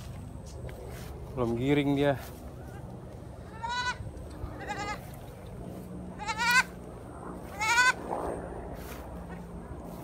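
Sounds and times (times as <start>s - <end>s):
goat kid bleating: 3.4s - 6.8s, 7.4s - 8.0s.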